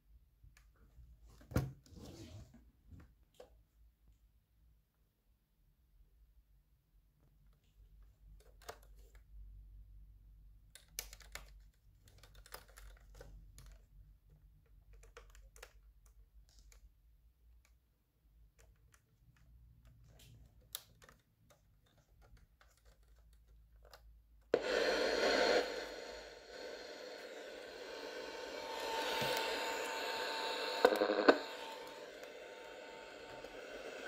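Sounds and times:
radio static hiss: 0:24.6 - 0:34.0.

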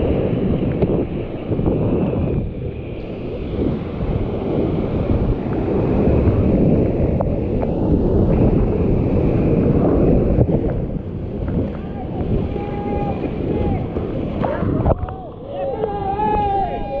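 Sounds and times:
wind buffeting microphone: 0:00.0 - 0:17.0
whitewater rushing: 0:10.6 - 0:17.0.

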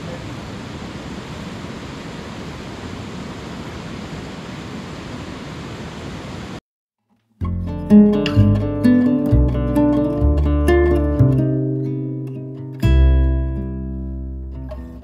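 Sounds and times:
outdoor night ambience rushing: 0:00.0 - 0:06.6
acoustic guitar music: 0:07.3 - 0:15.0.

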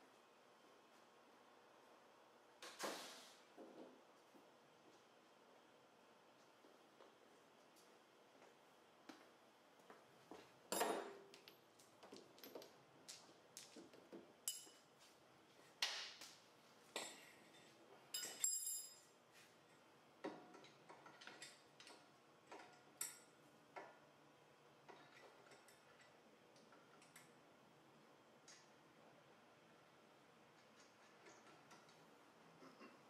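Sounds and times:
metal tools clinking: 0:14.5 - 0:14.8, 0:17.0 - 0:19.1.

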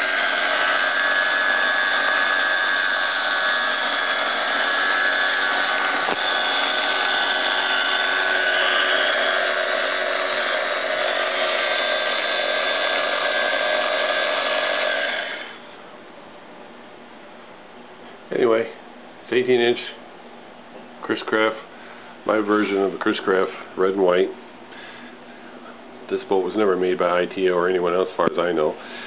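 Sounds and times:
small electric motor whining: 0:00.0 - 0:15.7.

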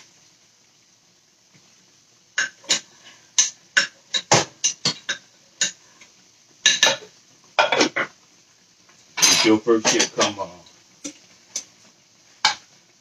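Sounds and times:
utensils clinking against dishes: 0:09.2 - 0:10.3.

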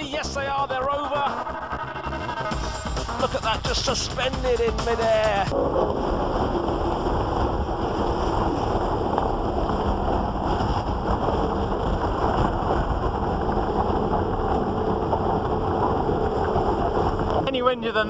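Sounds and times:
choppy water: 0:00.2 - 0:18.0
wind buffeting microphone: 0:05.1 - 0:18.0.

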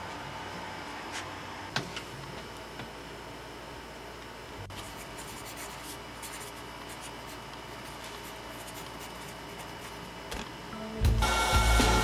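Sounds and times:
low room hum: 0:00.0 - 0:12.0
pencil writing on paper: 0:04.9 - 0:10.0.

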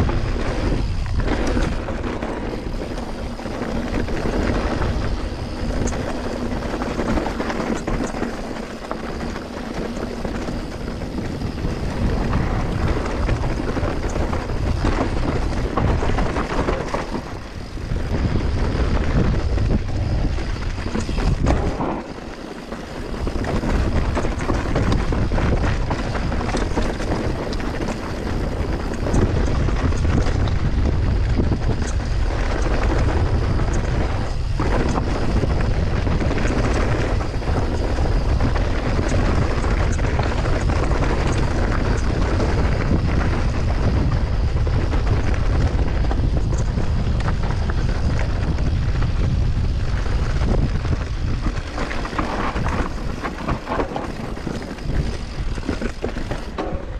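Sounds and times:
bike clicks and rattles: 0:00.0 - 0:56.9
tyres rumbling over dirt: 0:00.0 - 0:56.9
wind buffeting microphone: 0:00.0 - 0:56.9.

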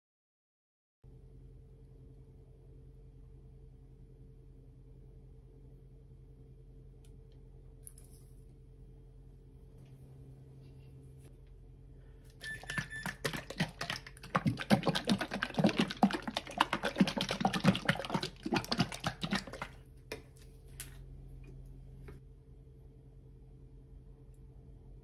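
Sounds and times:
liquid sloshing in shaken bottle: 0:12.4 - 0:20.8.

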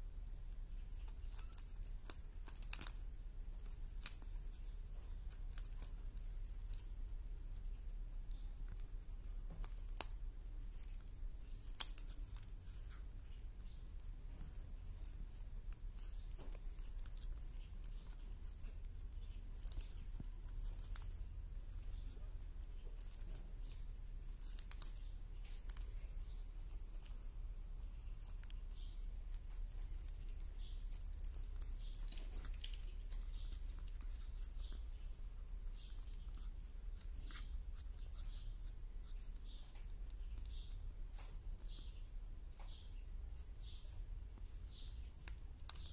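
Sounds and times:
beak clicking and snipping on meat: 0:00.9 - 0:41.9, 0:42.5 - 0:45.9
beak tearing flesh: 0:01.0 - 0:04.3.

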